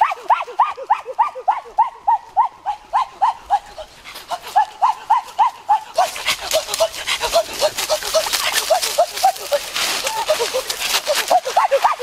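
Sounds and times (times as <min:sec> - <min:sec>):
turkey yelping: 0:00.0 - 0:12.0
crunching of dry leaves: 0:03.5 - 0:12.0.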